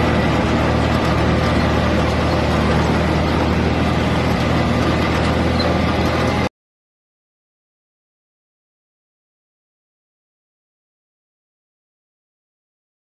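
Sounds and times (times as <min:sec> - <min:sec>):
tractor engine running: 0:00.0 - 0:06.5.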